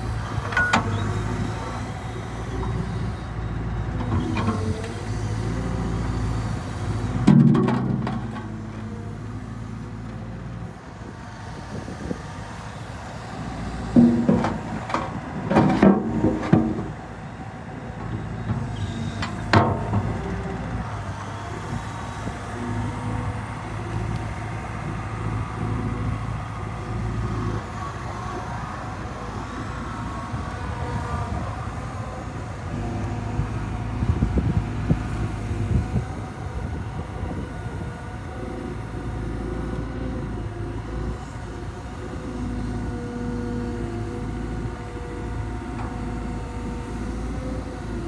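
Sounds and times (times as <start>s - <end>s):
excavator diesel engine running: 0.0s - 48.0s
hydraulics working: 0.0s - 48.0s.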